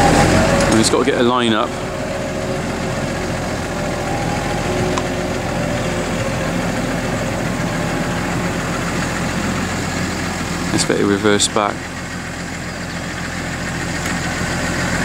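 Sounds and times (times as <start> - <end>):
tractor diesel engine running: 0.0 - 15.0.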